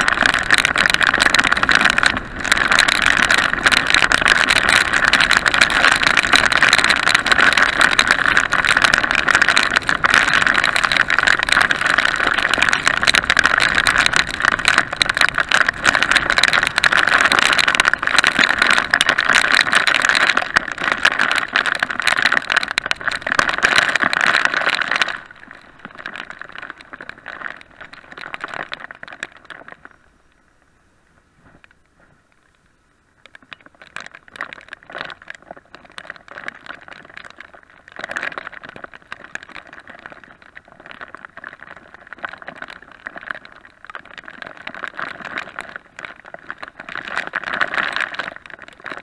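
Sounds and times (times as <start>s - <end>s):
rain on microphone: 0.0s - 49.0s.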